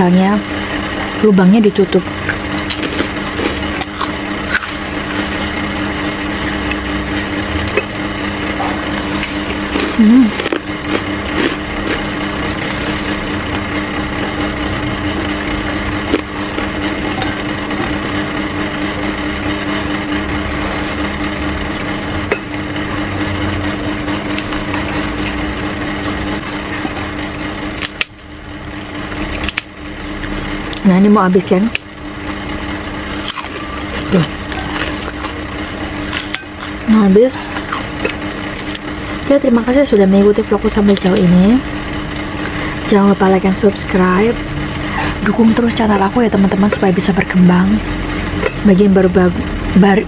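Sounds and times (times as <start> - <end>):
small motor humming: 0.0 - 50.0.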